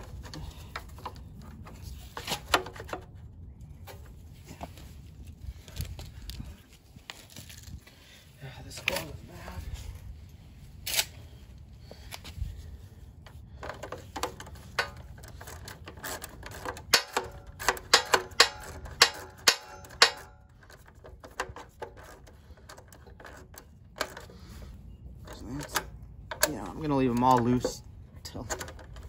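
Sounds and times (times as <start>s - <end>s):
metal clicks and clinks: 14.7s - 24.3s
ratchet wrench turning bolts: 14.8s - 24.3s.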